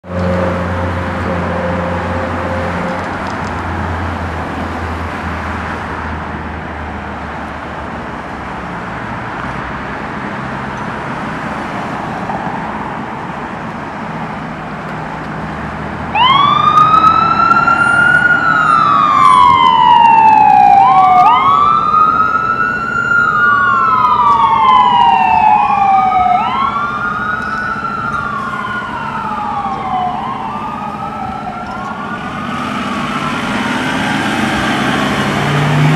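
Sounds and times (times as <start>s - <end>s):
street traffic: 0.0s - 35.9s
fire engine siren wailing: 0.1s - 5.1s, 16.0s - 35.9s.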